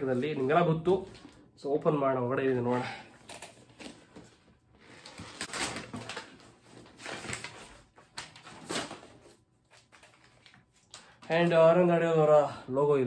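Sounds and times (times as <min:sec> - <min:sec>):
wrapping paper rustling and tearing: 0:04.8 - 0:11.6.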